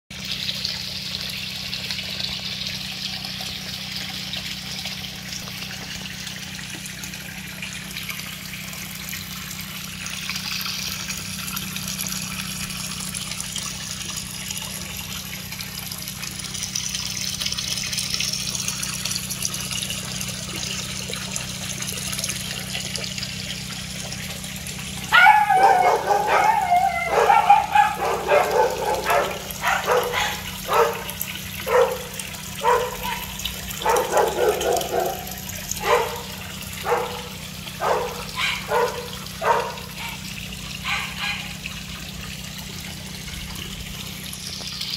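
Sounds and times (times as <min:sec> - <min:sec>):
hose water splashing into tank: 0:00.1 - 0:44.9
dog barking loudly: 0:25.0 - 0:40.2, 0:40.8 - 0:41.6.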